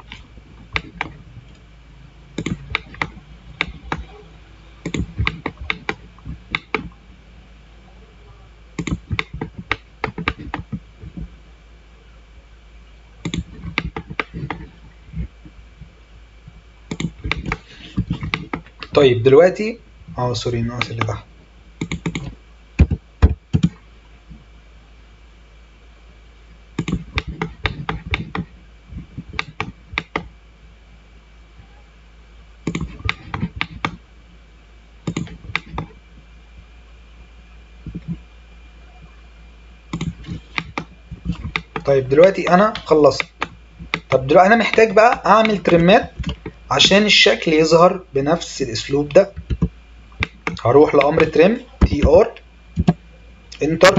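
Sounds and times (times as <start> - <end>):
mouse and keyboard clicks: 2.4 - 4.1, 4.8 - 7.0, 13.2 - 14.7, 16.9 - 19.0, 21.8 - 23.8, 26.8 - 28.5, 32.7 - 34.0, 35.1 - 35.9, 39.9 - 41.9.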